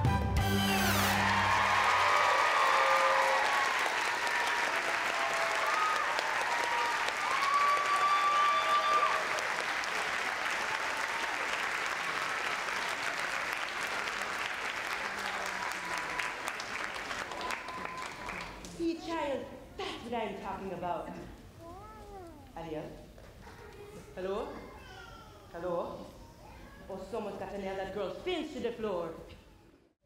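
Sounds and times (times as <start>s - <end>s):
audience applauding: 0.9s - 18.8s
shouts and whoops: 1.0s - 9.4s.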